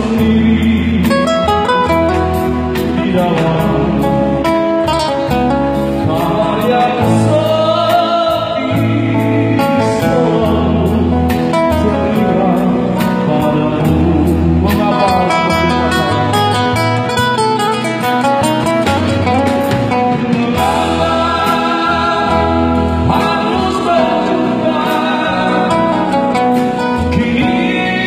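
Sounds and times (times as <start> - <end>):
drum kit: 0.0 - 28.0
man singing: 0.0 - 28.0
strummed guitars: 0.0 - 28.0.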